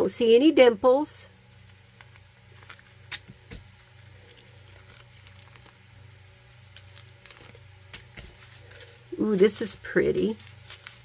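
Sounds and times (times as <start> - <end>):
low steady hum: 0.0 - 11.0
plastic bags rustling and clicking: 1.6 - 5.9, 6.7 - 11.0.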